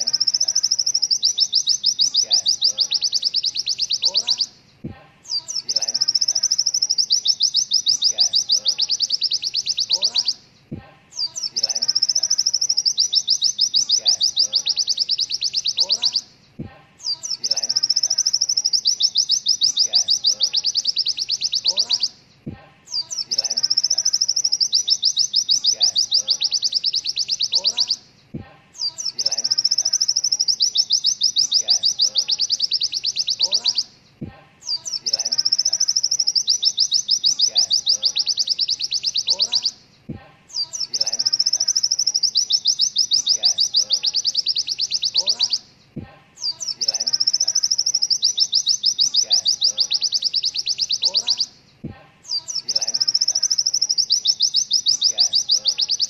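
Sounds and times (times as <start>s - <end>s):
bird singing fast rattling trill: 0.0s - 4.5s, 5.3s - 10.4s, 11.1s - 16.3s, 17.0s - 22.2s, 22.9s - 28.0s, 28.8s - 33.9s, 34.6s - 39.8s, 40.5s - 45.7s, 46.4s - 51.6s, 52.3s - 56.0s.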